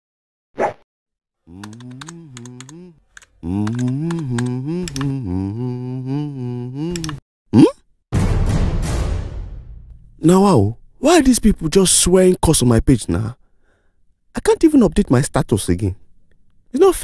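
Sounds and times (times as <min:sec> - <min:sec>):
man humming: 0:01.4 - 0:07.8
keyboard typing: 0:01.5 - 0:05.2, 0:06.8 - 0:07.2.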